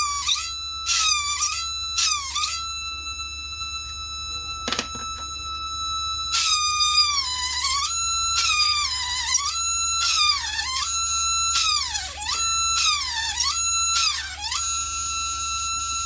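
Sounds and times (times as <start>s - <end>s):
small drill motor whine: 0.0s - 16.0s.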